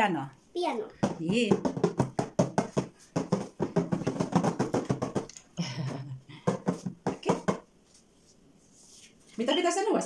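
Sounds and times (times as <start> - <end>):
hands drumming on cardboard box: 1.0 - 5.3, 6.4 - 7.7.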